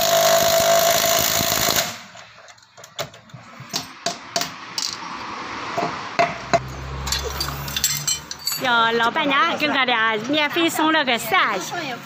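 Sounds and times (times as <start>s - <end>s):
impact wrench rattling: 7.1s - 8.8s.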